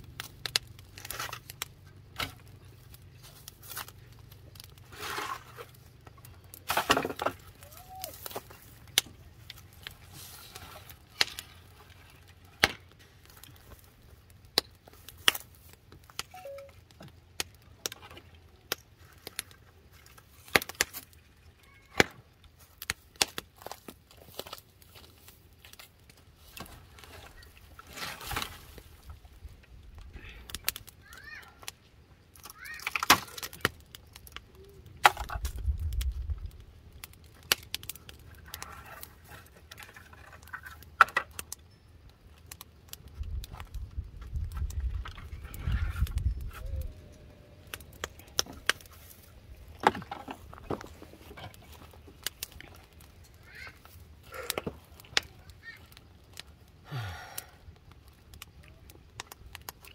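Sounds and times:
wood scraping: 4.8s - 5.8s, 38.2s - 41.4s, 47.8s - 53.0s
wooden boards knocking and clattering: 6.7s - 7.5s, 49.8s - 51.5s.

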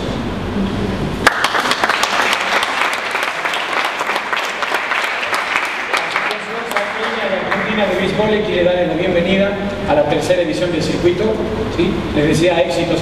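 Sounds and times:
group of people applauding: 1.2s - 8.0s.

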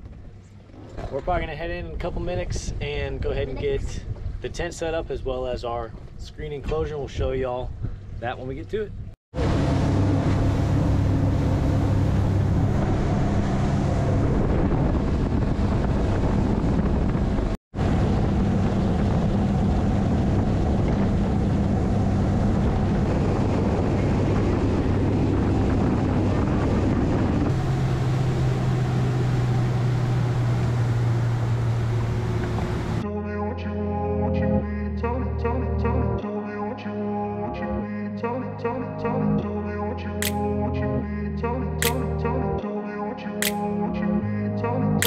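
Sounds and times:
wind buffeting microphone: 0.9s - 33.0s
outboard engine drone: 7.7s - 45.0s
music: 33.0s - 45.0s.

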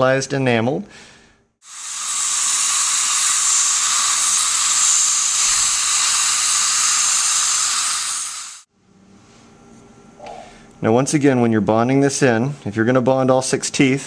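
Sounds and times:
dental syringe spraying: 1.6s - 8.7s
suction tip hissing: 1.6s - 8.7s.

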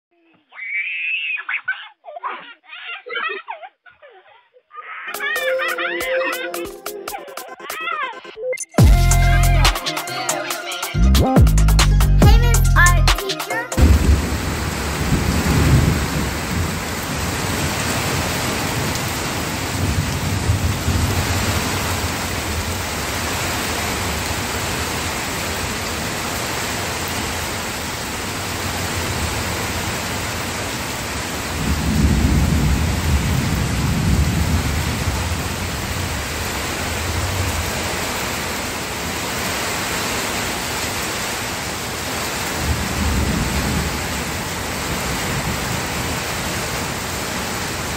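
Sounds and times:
steady rain falling: 8.8s - 47.9s
thunder rumbling: 13.8s - 23.0s, 31.6s - 37.8s.

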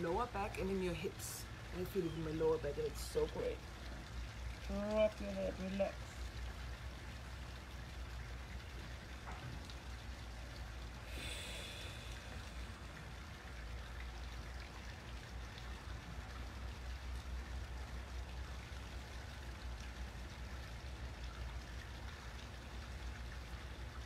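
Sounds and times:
even hiss: 11.0s - 13.2s.

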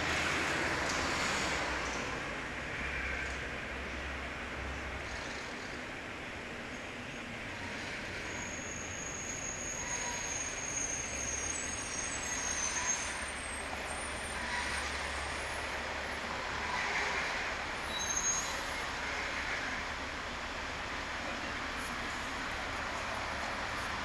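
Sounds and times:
cars driving past: 0.0s - 6.2s
thin high squeals: 7.8s - 15.5s, 17.8s - 18.8s.

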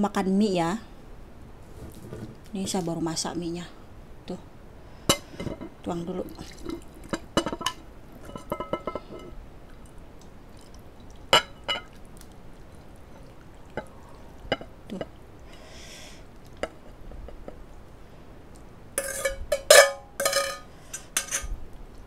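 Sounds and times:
liquid pouring and dripping: 6.2s - 7.3s, 9.6s - 15.4s
metal spoon clinking on pot: 7.4s - 9.3s, 19.0s - 21.5s.

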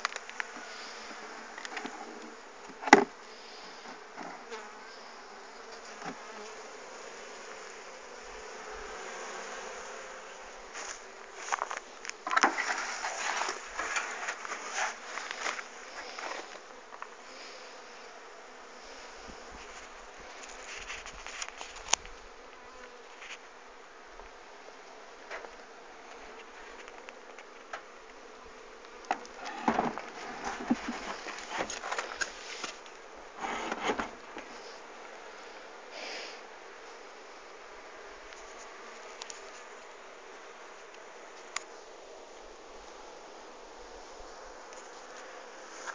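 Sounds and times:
bee swarm buzzing: 0.0s - 45.9s
rustling and knocks: 29.1s - 32.8s, 33.4s - 34.6s.

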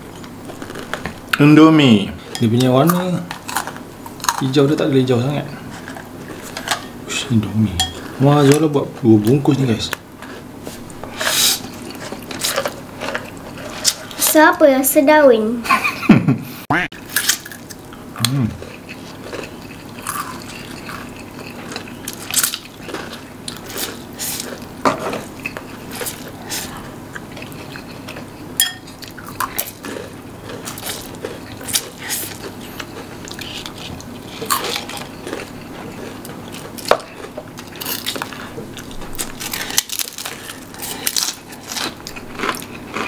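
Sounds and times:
biting and chewing: 0.1s - 1.2s, 10.2s - 14.2s, 17.1s - 43.0s
cutlery clinking on bowls: 28.6s - 28.9s.

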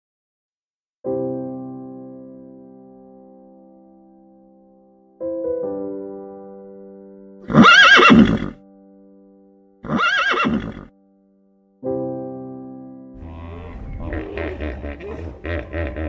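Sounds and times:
horse whinnying: 7.5s - 8.6s, 9.8s - 10.9s.

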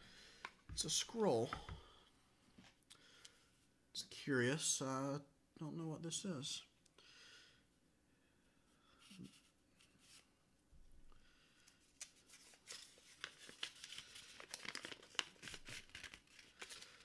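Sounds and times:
paper scroll crackling: 12.0s - 17.0s.

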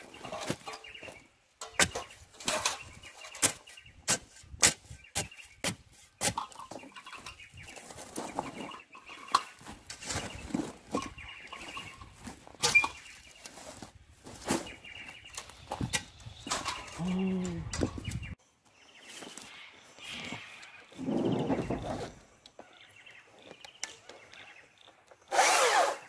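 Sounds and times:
birds chattering: 0.0s - 13.6s, 14.3s - 26.0s
shovel scraping rocky dirt: 0.0s - 17.8s, 25.3s - 26.0s.

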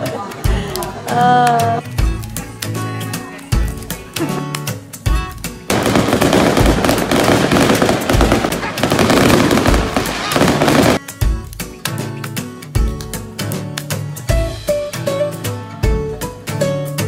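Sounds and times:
fireworks crackling and bursting: 5.3s - 11.2s.

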